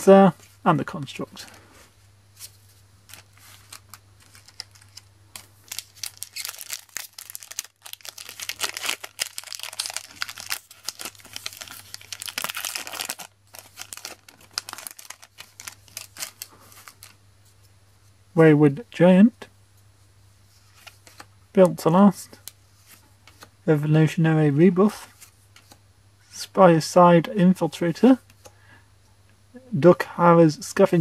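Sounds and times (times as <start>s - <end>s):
foil wrapper tearing and crinkling: 3.1s - 17.2s.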